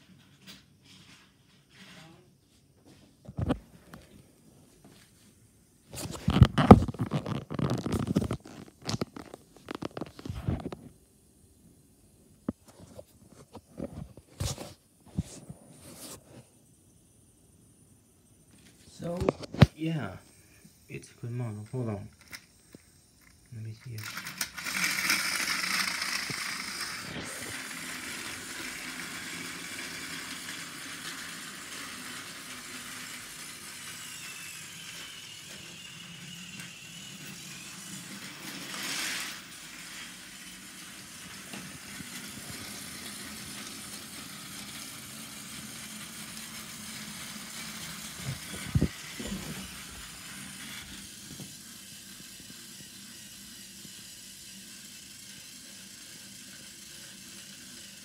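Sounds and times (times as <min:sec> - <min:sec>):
toy train motor whir: 0:05.9 - 0:11.2, 0:18.2 - 0:58.0
wheels rattling on plastic track: 0:21.0 - 0:22.5, 0:23.2 - 0:58.0.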